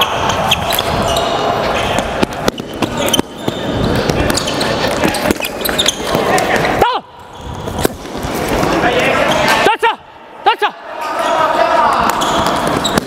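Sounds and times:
voices in a hall: 0.0 - 13.0
footfalls on court floor: 0.5 - 9.6, 11.9 - 13.0.

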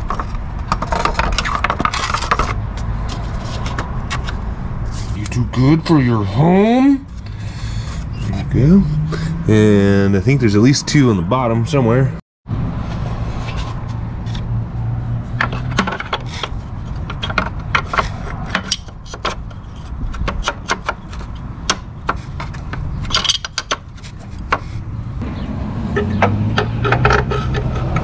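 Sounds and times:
hand tools clicking and clinking: 15.4 - 24.6.

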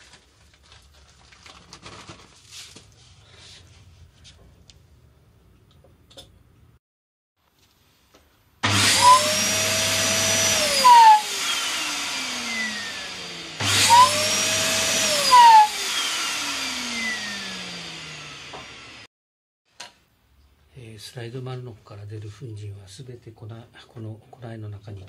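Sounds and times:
vacuum cleaner motor whining: 8.6 - 19.1.

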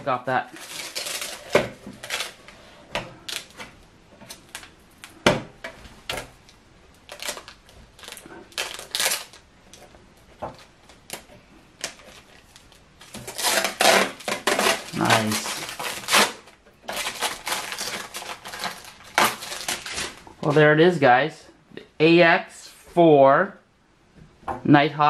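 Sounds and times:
plastic film crinkling: 0.4 - 2.6, 3.2 - 5.2, 6.1 - 20.6.

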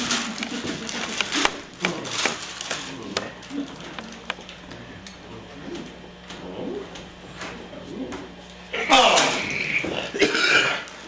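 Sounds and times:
rustling: 0.0 - 4.9.

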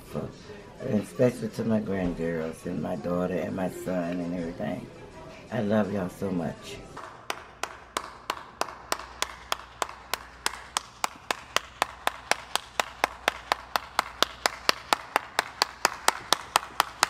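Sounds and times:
person clapping hands: 7.0 - 17.0.

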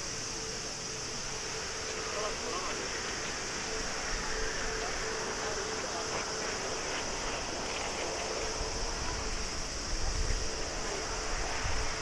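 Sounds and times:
jet engines idling with whine: 0.0 - 12.0
wind rumble on microphone: 6.6 - 12.0.

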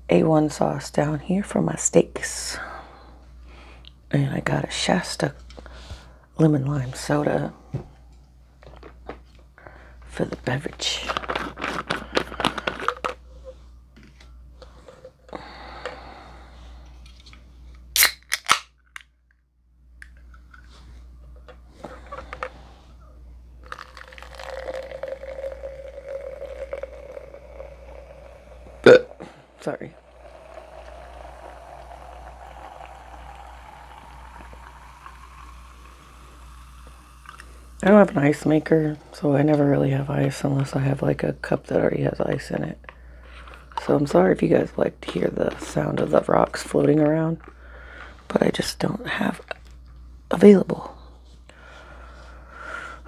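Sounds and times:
soda pouring and fizzing: 23.6 - 38.4.

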